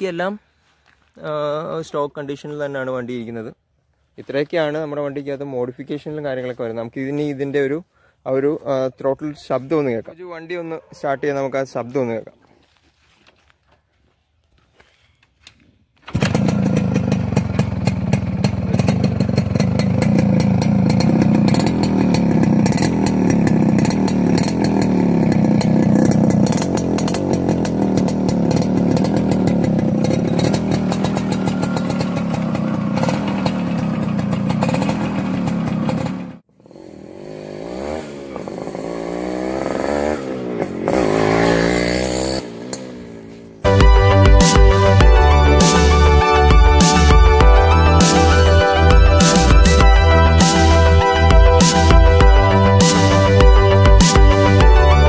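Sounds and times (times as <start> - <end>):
motorbike engine revving: 16.1 - 55.0.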